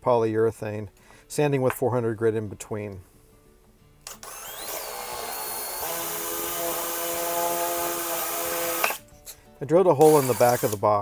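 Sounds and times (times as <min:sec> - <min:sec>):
cordless drill boring wood: 0:04.1 - 0:09.0, 0:10.0 - 0:10.8.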